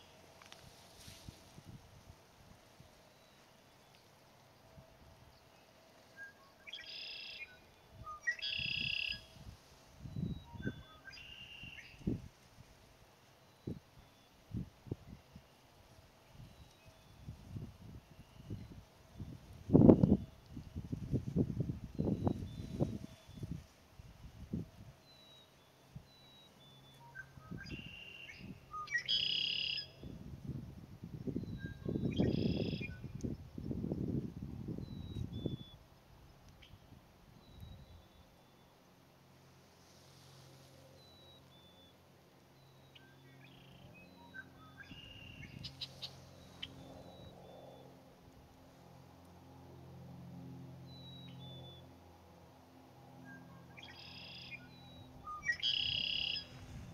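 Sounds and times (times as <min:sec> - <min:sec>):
blackbird singing buzzy trill: 0:05.3 - 0:09.4, 0:10.0 - 0:12.2, 0:24.5 - 0:30.2, 0:31.2 - 0:35.8, 0:42.6 - 0:47.8, 0:50.9 - 0:51.8, 0:53.2 - 0:56.6.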